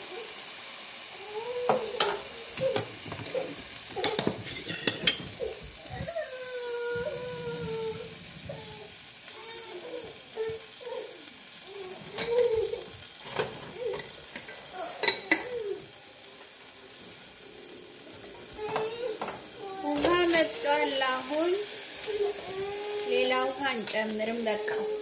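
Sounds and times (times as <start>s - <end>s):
steady hiss: 0.0s - 25.0s
kernels rattling in frying pan: 0.1s - 25.0s.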